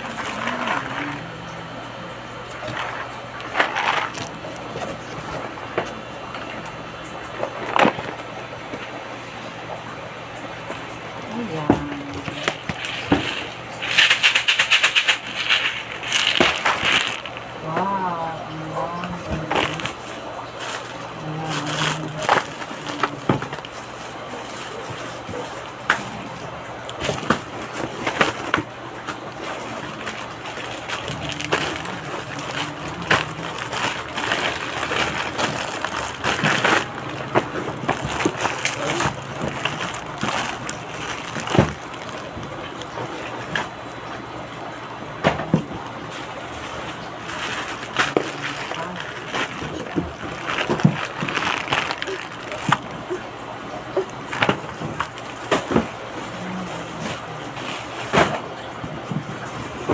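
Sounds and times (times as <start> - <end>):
plastic packaging crinkling: 0.0 - 9.0, 10.6 - 59.9.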